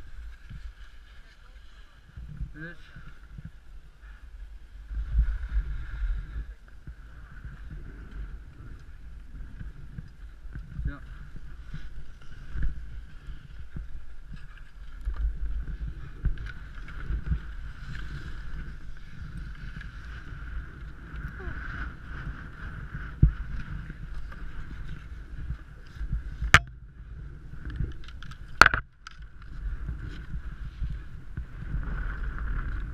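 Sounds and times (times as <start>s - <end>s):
skier scuffing on snow: 0.0s - 2.3s, 11.1s - 26.4s
wind buffeting microphone: 1.8s - 32.9s.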